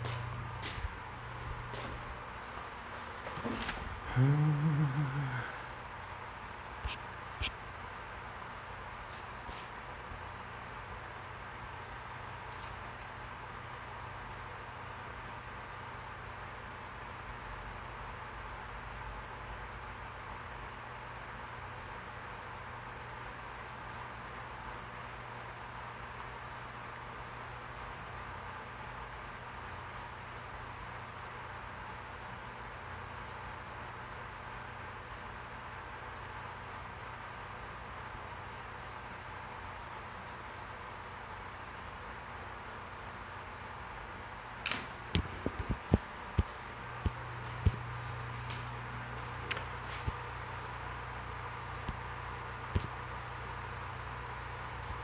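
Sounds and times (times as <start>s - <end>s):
aquarium air pump hum: 0.0s - 55.0s.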